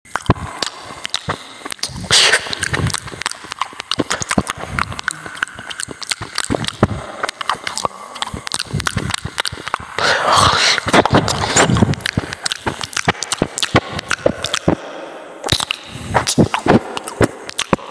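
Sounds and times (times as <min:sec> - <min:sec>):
dog chewing and licking: 0:00.1 - 0:09.8, 0:10.9 - 0:14.7.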